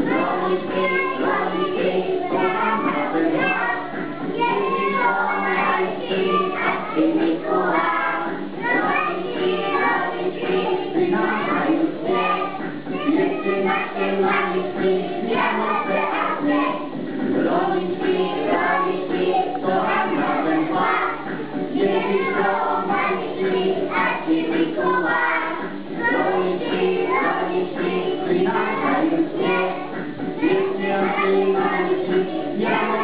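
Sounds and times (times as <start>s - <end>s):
accompanying music: 0.0s - 33.0s
children singing: 0.0s - 33.0s.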